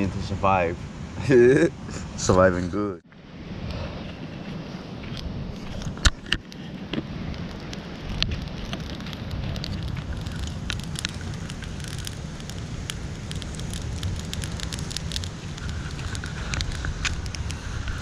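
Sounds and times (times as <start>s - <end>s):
campfire crackling and popping: 5.2s - 18.0s.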